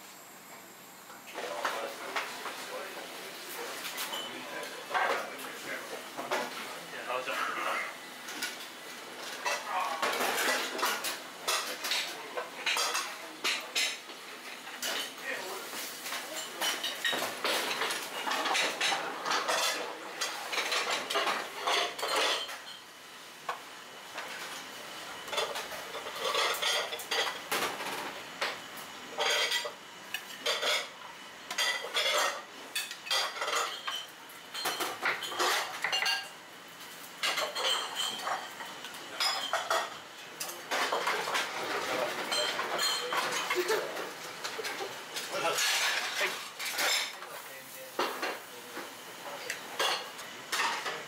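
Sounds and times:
clatter of kitchen utensils and dishes: 0:01.3 - 0:22.9, 0:23.5 - 0:51.0.

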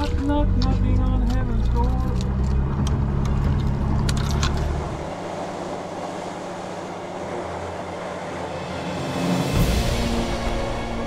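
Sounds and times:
boat engine rumble: 0:00.0 - 0:11.0
wind and sea hiss: 0:04.6 - 0:11.0.

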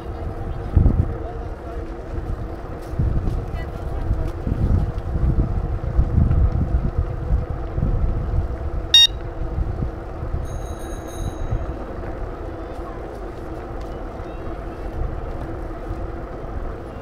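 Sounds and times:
gusty wind rumble: 0:00.0 - 0:17.0
street noise: 0:00.0 - 0:17.0
high steady beep: 0:09.0 - 0:09.2.

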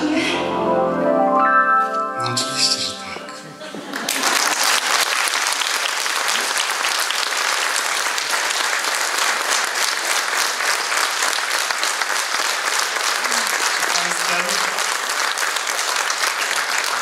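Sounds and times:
audience applauding: 0:03.7 - 0:17.0.

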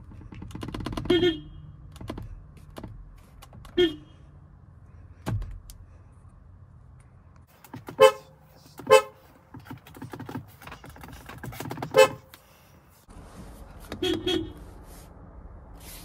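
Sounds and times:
car horn toots: 0:01.0 - 0:01.6, 0:03.6 - 0:04.2, 0:07.8 - 0:09.2, 0:11.8 - 0:12.3, 0:13.9 - 0:14.6.

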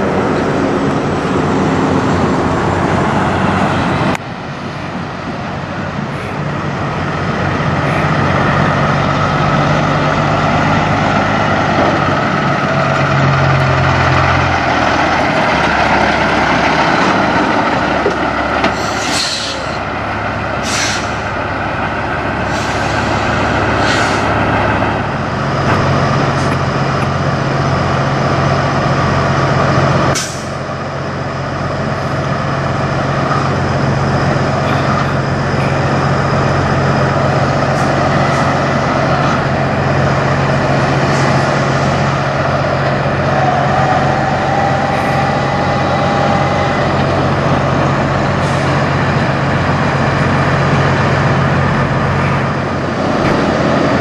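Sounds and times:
truck diesel engines droning: 0:00.0 - 0:54.0
air brake hisses: 0:18.7 - 0:19.8, 0:20.6 - 0:21.3, 0:22.4 - 0:24.4, 0:30.2 - 0:30.6.

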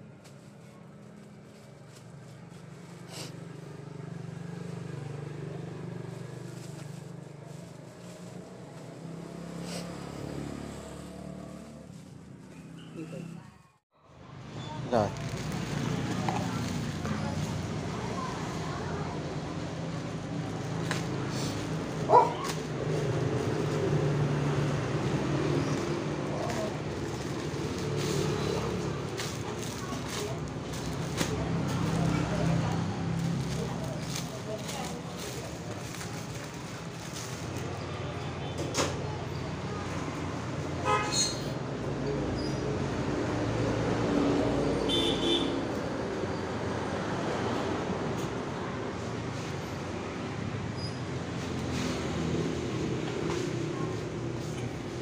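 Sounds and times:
street traffic: 0:00.0 - 0:55.0
plastic bag crinkling: 0:15.1 - 0:17.5
dog yipping: 0:22.1 - 0:22.5.

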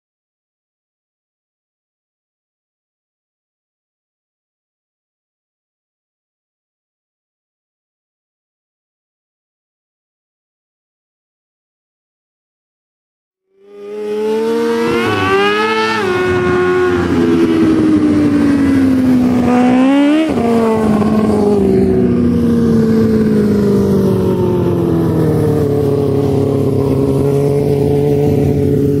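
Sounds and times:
motorcycle engine revving: 0:13.6 - 0:29.0.

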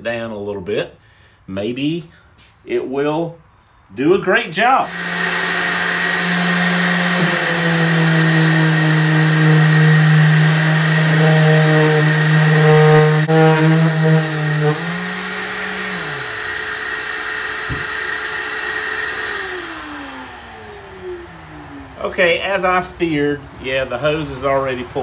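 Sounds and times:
orbital sander on wood: 0:04.8 - 0:22.2.

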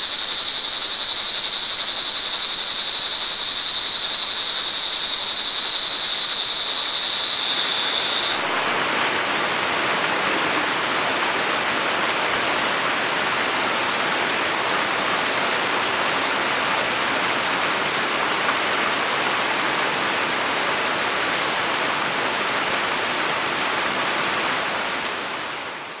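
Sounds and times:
crickets trilling: 0:00.0 - 0:08.6
rain falling: 0:00.0 - 0:26.0.

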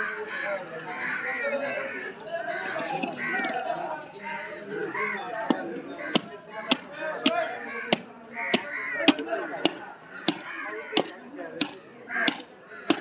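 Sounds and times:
butcher's knife chopping meat: 0:05.5 - 0:13.0.

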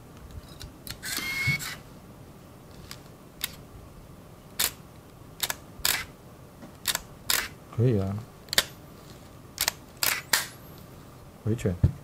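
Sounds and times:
camera motor whirring: 0:00.9 - 0:01.8, 0:05.4 - 0:06.1, 0:06.9 - 0:07.5, 0:09.6 - 0:10.5
camera shutter clicks: 0:00.9 - 0:01.8, 0:05.4 - 0:06.1, 0:06.8 - 0:07.6, 0:09.6 - 0:10.6.

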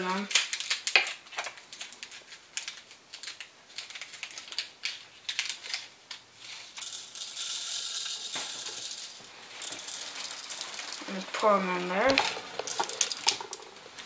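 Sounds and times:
plastic packets crinkling and tearing: 0:00.1 - 0:06.7, 0:11.9 - 0:14.0
beads pouring into plastic clip: 0:06.4 - 0:14.0.

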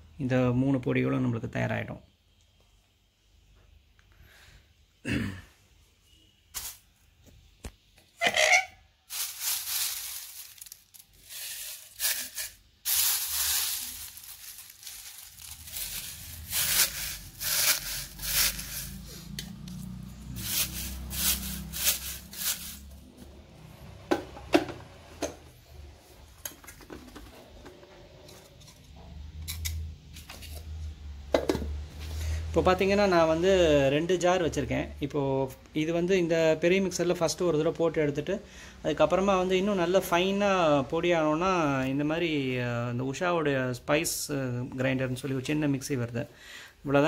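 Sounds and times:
dry leaves crackling: 0:09.1 - 0:19.0, 0:19.6 - 0:22.9.

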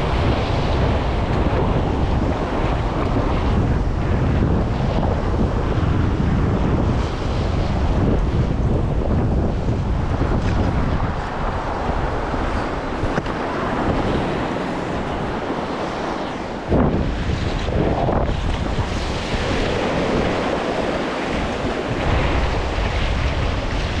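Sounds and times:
waves washing up a beach: 0:00.0 - 0:24.0
wind buffeting microphone: 0:00.0 - 0:24.0
loud water splash: 0:15.4 - 0:24.0.

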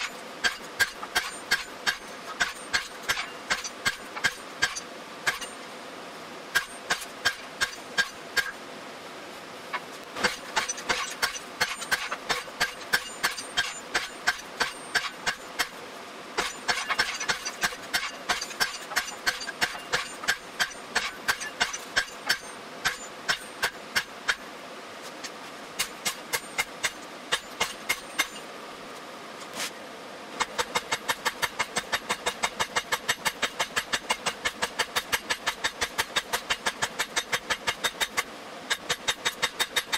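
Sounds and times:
hammer striking steel on anvil: 0:00.0 - 0:05.6, 0:06.5 - 0:08.6, 0:10.2 - 0:15.8, 0:16.4 - 0:24.4, 0:25.8 - 0:28.4.

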